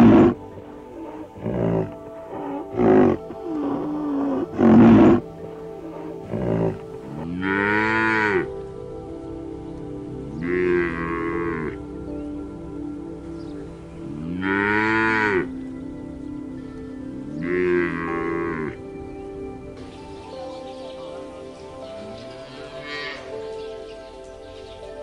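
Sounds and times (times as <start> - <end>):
cattle mooing: 0.0 - 8.6, 10.4 - 11.9, 14.1 - 15.6, 17.3 - 18.9, 22.0 - 23.4.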